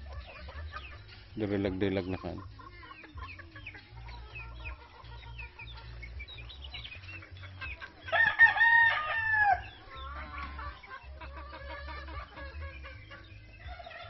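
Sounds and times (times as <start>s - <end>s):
chickens clucking: 0.0s - 14.0s
rooster crowing: 8.1s - 9.7s.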